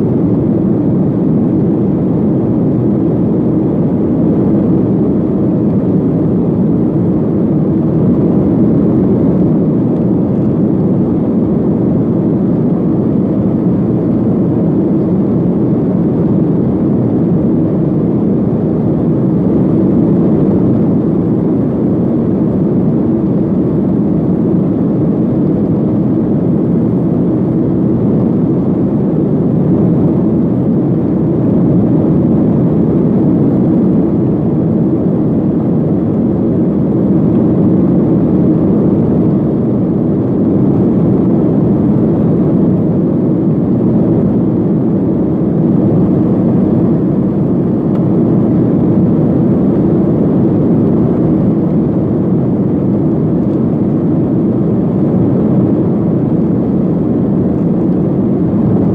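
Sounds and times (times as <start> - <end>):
airplane cabin engine rush: 0.0 - 58.9.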